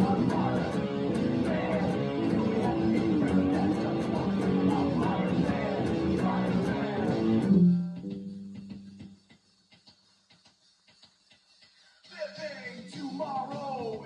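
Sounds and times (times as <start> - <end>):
electric guitar played fast: 0.0 - 9.2.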